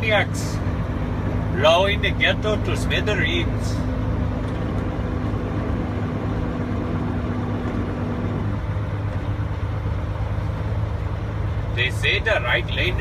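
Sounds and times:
diesel truck engine drone: 0.0s - 13.0s.

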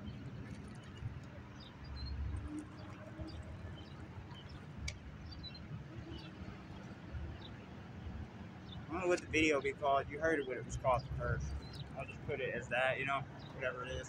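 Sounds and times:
faint bird chirps: 0.0s - 7.8s
low steady rumble: 0.0s - 14.0s.

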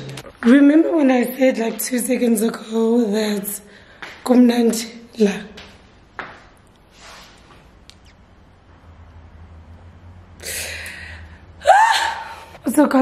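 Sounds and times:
woman breathing and sniffling: 10.4s - 11.5s.

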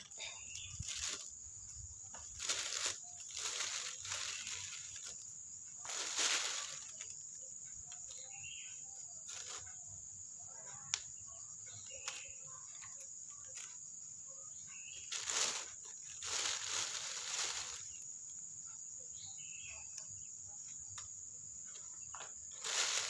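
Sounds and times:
plastic bag crinkling: 0.0s - 1.3s, 2.2s - 5.2s, 5.8s - 7.1s, 15.1s - 18.0s, 22.5s - 23.0s
small picking noises: 0.0s - 9.9s, 10.5s - 14.0s, 14.7s - 18.4s, 19.7s - 23.0s.

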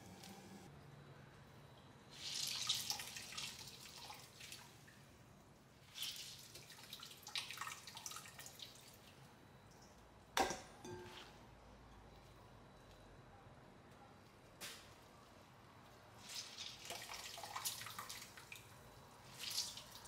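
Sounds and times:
water trickling and dripping into pot: 2.2s - 5.1s, 5.8s - 10.0s, 16.3s - 20.0s.

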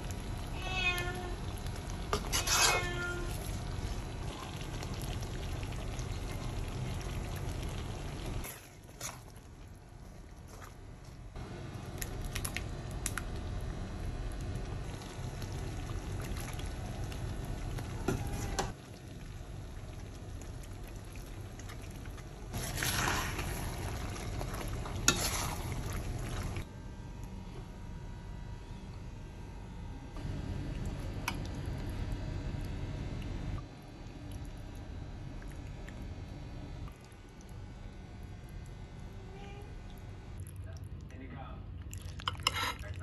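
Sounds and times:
sauce bubbling in a pan: 0.0s - 10.6s, 13.6s - 26.7s
metal spoon stirring: 2.1s - 3.0s.

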